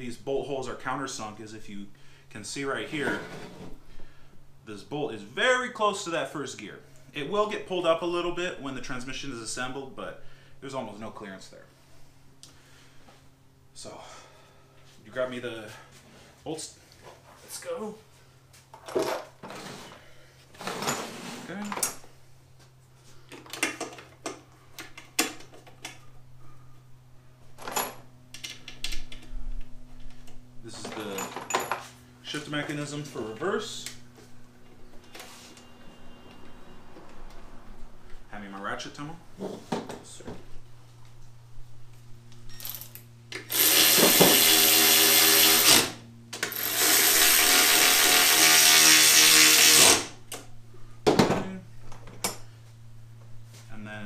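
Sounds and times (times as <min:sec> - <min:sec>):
steady low hum: 0:00.0 - 0:54.0
metal parts clinking and rattling: 0:30.7 - 0:31.9
electric ratchet motor running: 0:42.5 - 0:50.2.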